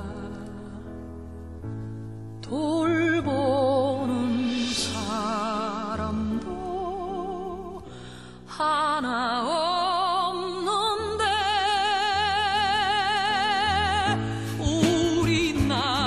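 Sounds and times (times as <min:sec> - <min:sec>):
singer with wide vibrato: 0:02.4 - 0:16.0.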